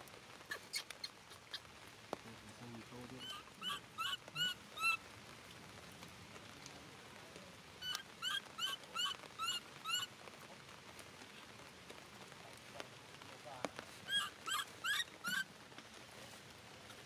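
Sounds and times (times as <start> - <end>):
steady rain: 0.0 - 17.0
baby monkey squeaky calls: 0.5 - 1.7, 3.2 - 5.0, 7.8 - 10.1, 14.1 - 15.5.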